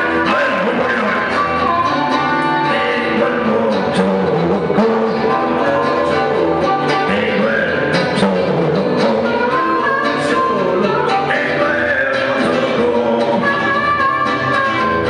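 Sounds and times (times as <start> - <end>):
electric guitar: 0.0 - 15.0
harmonica: 0.0 - 15.0
man singing into a microphone: 0.0 - 15.0.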